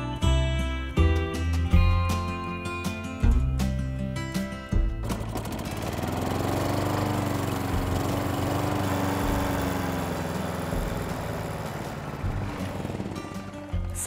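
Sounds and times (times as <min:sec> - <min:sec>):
string trimmer cutting grass: 0:05.0 - 0:14.0.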